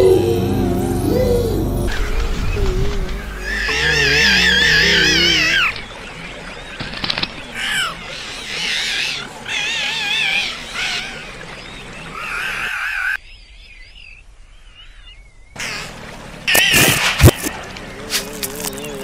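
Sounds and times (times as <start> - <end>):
warbling animal-like calls: 0.0 - 13.2.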